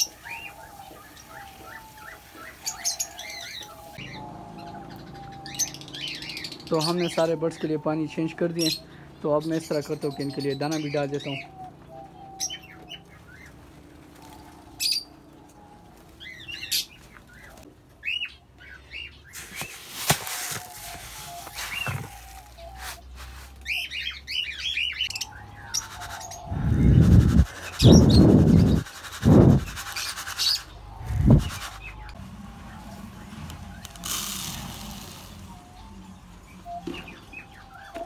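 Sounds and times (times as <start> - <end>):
budgerigars chirping and chattering: 0.0 - 13.5, 16.2 - 19.4, 20.6 - 38.0
seed shaken in plastic tub: 19.4 - 23.6, 25.8 - 32.0.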